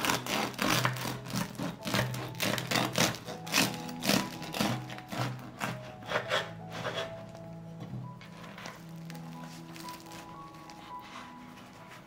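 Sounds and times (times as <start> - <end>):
bread knife sawing through crust: 0.0 - 7.3
background music: 0.0 - 12.0.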